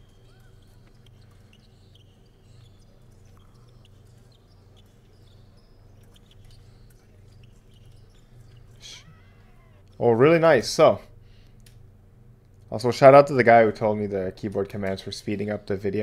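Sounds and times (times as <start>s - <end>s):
faint low hum: 0.0s - 16.0s
soft clicks: 11.4s - 11.8s.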